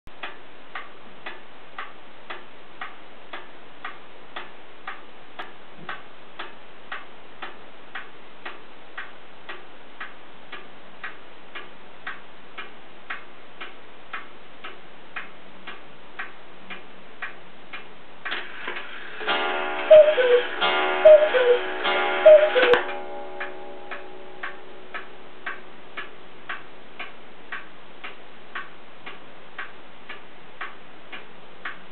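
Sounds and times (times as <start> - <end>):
clock ticking: 0.1 - 31.9
clock works whirring: 18.2 - 23.1.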